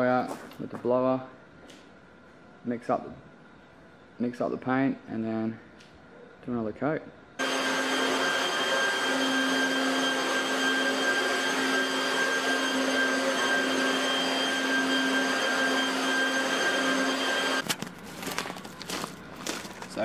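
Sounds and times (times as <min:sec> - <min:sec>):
electric leaf blower whining: 0:07.4 - 0:19.6.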